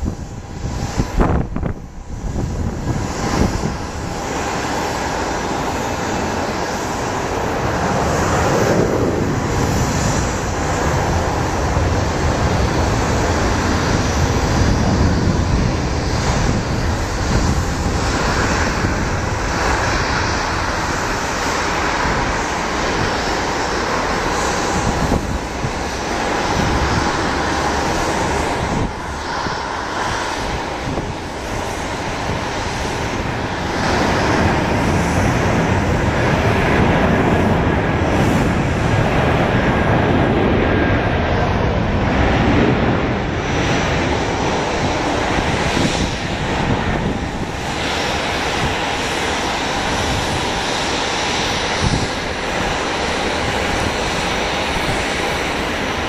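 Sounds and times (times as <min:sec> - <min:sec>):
jet engine noise: 0:00.0 - 0:56.0.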